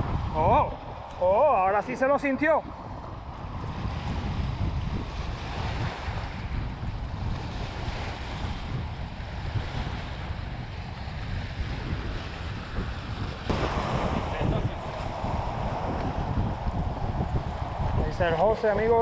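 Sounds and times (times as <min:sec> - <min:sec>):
wind buffeting microphone: 0:00.0 - 0:19.0
small waves washing on rocks: 0:13.5 - 0:19.0.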